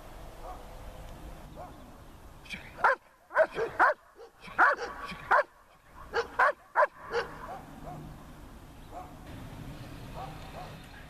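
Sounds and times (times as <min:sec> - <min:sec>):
large dog barking: 0:02.8 - 0:08.3, 0:08.9 - 0:09.2, 0:10.1 - 0:10.8.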